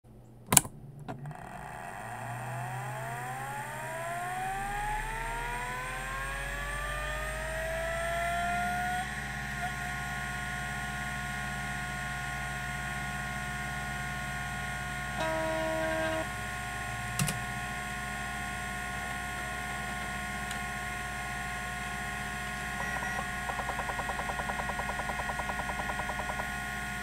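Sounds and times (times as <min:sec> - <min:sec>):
hard drive spinning up whine: 0:01.3 - 0:27.0
hard drive click: 0:22.6 - 0:27.0.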